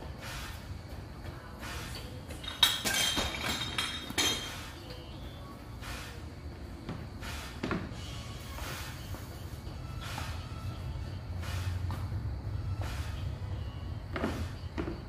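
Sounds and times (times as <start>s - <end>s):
low background hum: 0.0s - 15.0s
sharp ringing clinks: 2.3s - 4.6s.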